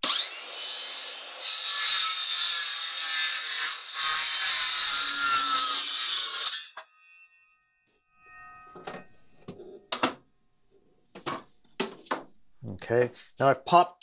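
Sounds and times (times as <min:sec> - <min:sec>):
circular saw cutting wood: 0:00.0 - 0:06.8.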